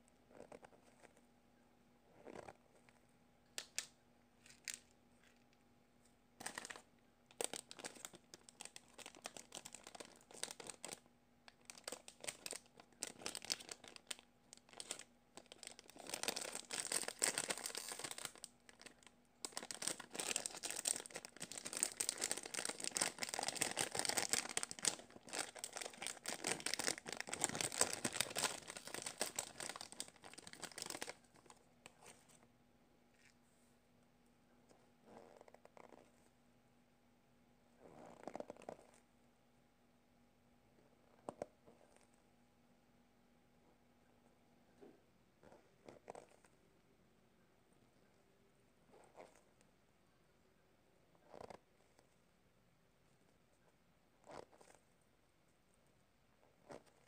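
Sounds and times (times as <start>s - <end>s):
plastic bag crinkling: 6.4s - 32.1s.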